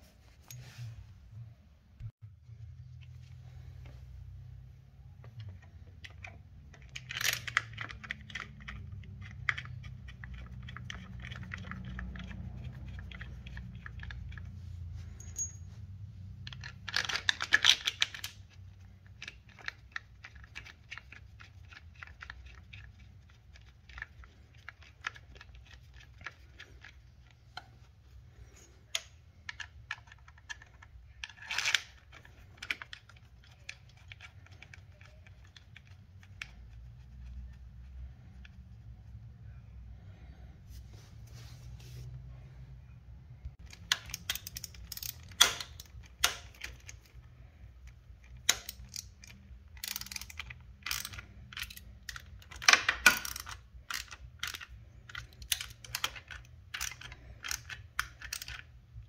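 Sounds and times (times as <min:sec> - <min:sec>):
small metal parts clicking and rattling: 0:05.4 - 0:14.5, 0:16.4 - 0:27.5, 0:28.4 - 0:36.8, 0:43.6 - 0:59.0.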